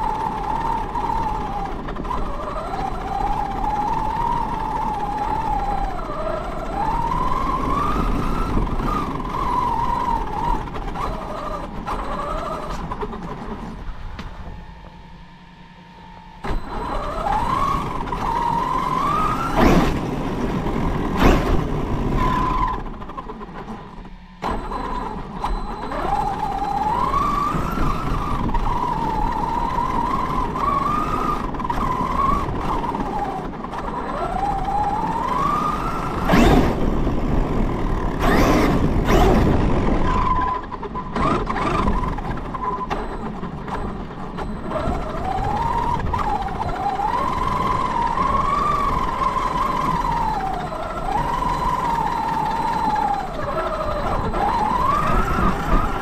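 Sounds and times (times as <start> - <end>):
tyres rumbling on paving and snow: 0.0 - 14.7, 16.4 - 56.0
rc car motor whining: 0.0 - 56.0.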